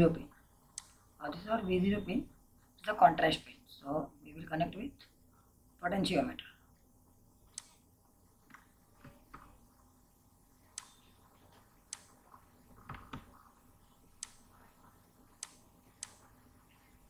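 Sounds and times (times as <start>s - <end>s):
computer mouse clicks: 0.7s - 1.0s, 7.5s - 7.8s, 10.7s - 13.5s, 14.1s - 16.4s.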